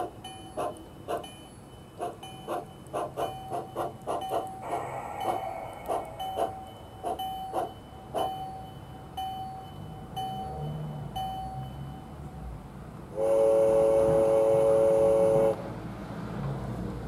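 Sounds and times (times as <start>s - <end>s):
model locomotive bell ringing: 0.0s - 12.3s
chime steam whistle: 4.2s - 8.6s.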